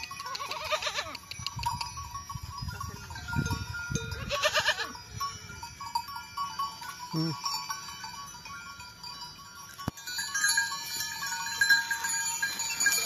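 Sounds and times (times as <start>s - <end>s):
small bells clinking: 0.0s - 13.0s
goat bleating: 0.2s - 1.2s, 4.1s - 5.0s.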